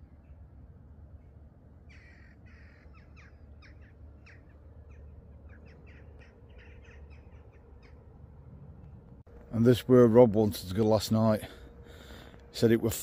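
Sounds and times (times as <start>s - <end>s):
birds calling: 0.0s - 9.2s
steady low rumble: 0.0s - 13.0s.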